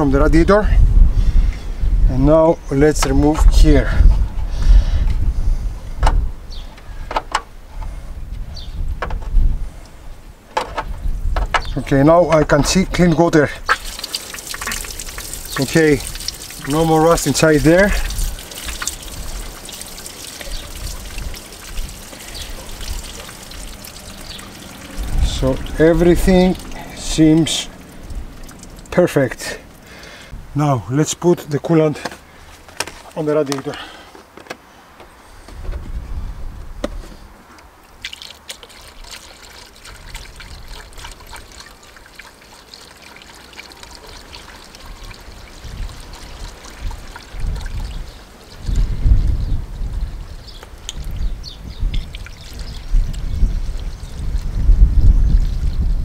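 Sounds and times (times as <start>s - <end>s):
low rumbles: 0.0s - 30.9s
water draining in a stream: 12.4s - 30.3s, 37.8s - 55.8s
liquid trickling and gurgling: 13.4s - 30.3s, 37.8s - 56.0s.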